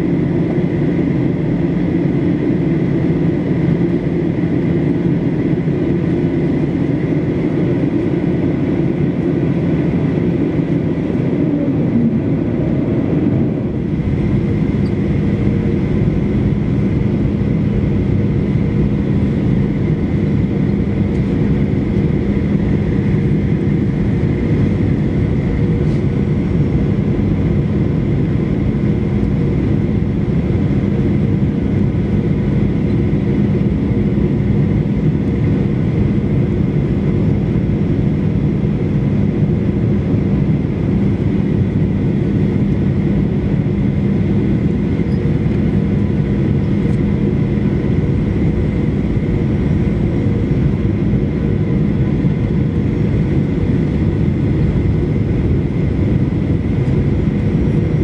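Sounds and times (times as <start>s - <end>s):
jet engines droning: 0.0s - 58.0s
steady low hum: 0.0s - 58.0s
rush of airflow: 9.6s - 16.9s, 20.9s - 29.1s.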